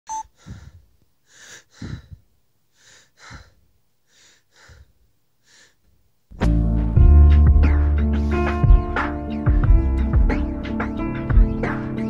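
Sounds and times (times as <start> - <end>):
person breathing heavily: 0.3 - 5.9, 8.0 - 8.8.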